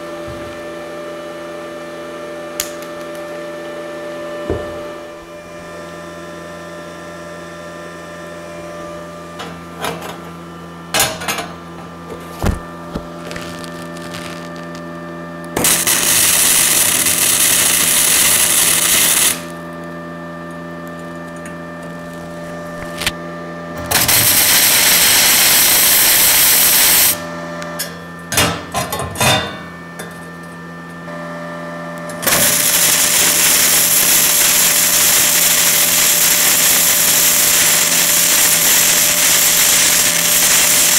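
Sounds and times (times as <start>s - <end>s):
steady hum: 3.9s - 40.9s
welding arc crackling: 12.4s - 14.9s, 15.5s - 19.6s, 21.9s - 23.2s, 23.8s - 27.2s, 32.2s - 40.9s.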